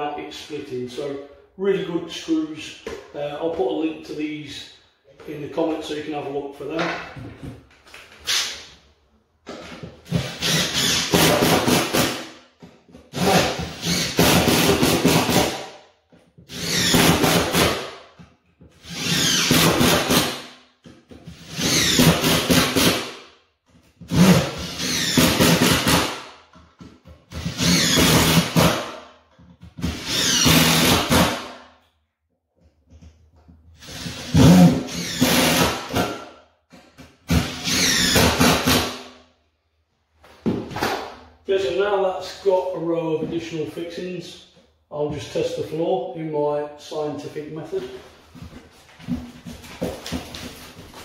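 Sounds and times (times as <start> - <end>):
impact driver driving screws: 10.1 - 12.2, 27.3 - 28.9, 29.8 - 31.5, 33.8 - 36.2, 37.0 - 39.0.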